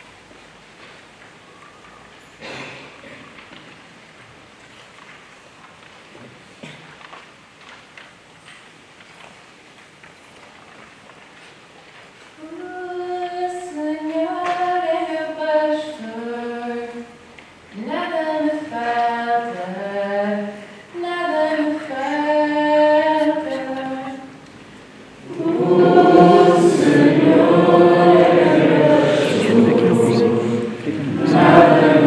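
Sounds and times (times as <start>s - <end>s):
woman singing unaccompanied: 12.4s - 17.2s, 17.8s - 24.4s, 25.3s - 32.0s
group of voices singing: 25.2s - 32.0s.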